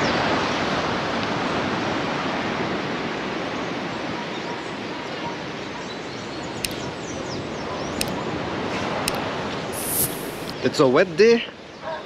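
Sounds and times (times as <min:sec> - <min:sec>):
ocean surf on a beach: 0:00.0 - 0:05.8.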